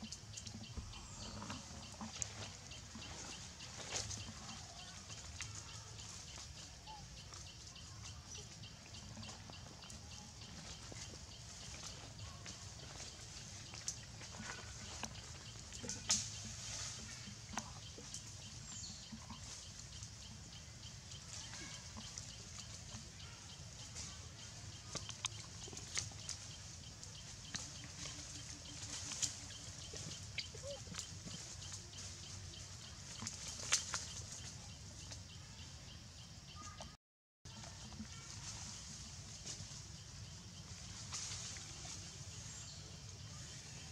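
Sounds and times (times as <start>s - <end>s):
low steady rumble: 0.0s - 5.0s.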